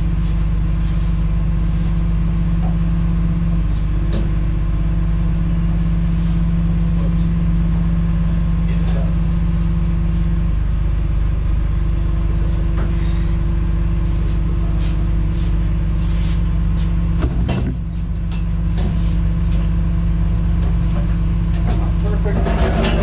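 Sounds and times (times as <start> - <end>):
engine idling: 0.0 - 23.0.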